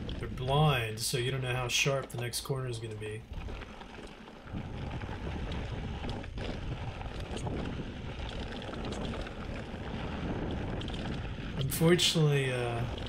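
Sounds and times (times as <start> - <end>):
mountain bike rattling on trail: 0.0 - 13.0
wind buffeting microphone: 0.0 - 13.0
sharp clicks from stones: 3.3 - 11.7.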